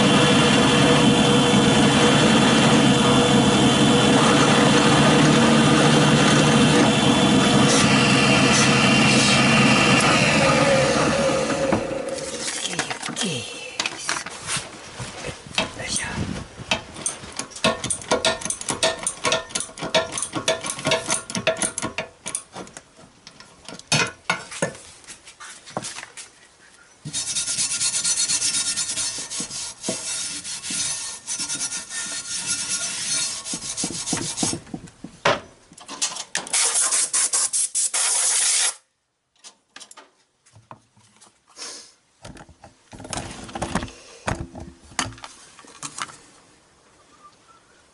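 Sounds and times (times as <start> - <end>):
stone scraping rusty metal: 27.1 - 34.6.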